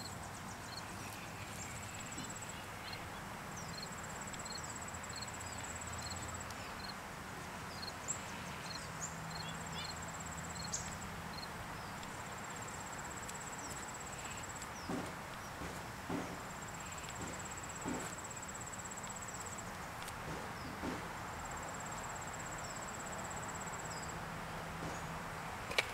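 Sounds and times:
steady background hush: 0.0s - 25.9s.

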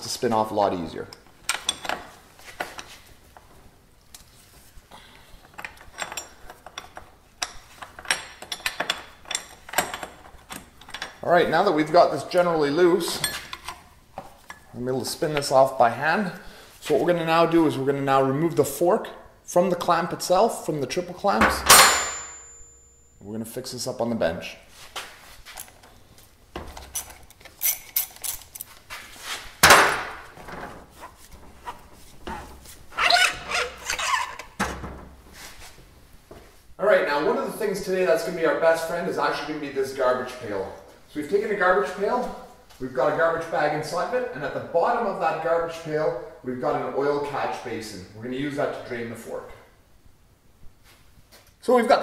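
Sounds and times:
tools knocking and clicking: 5.5s - 11.2s, 26.6s - 28.8s
wrench metal clicks and clinks: 26.8s - 28.8s.

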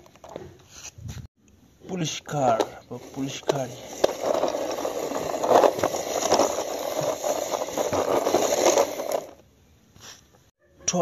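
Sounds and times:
toy wheels rolling over concrete: 0.0s - 0.9s, 2.0s - 9.4s.

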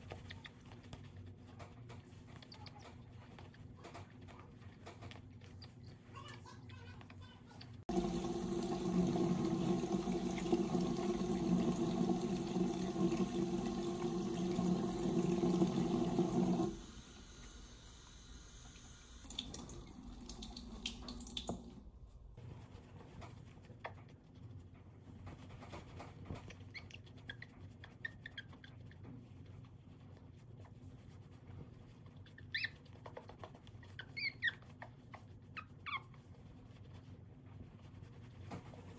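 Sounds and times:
tap running water splashing: 7.9s - 21.9s
puppy whimpering: 32.2s - 36.3s.

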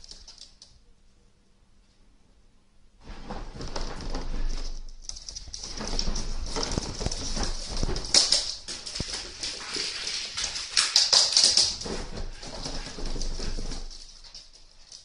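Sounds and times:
puppy claws clicking on wooden floor: 0.0s - 0.8s, 4.8s - 15.0s.

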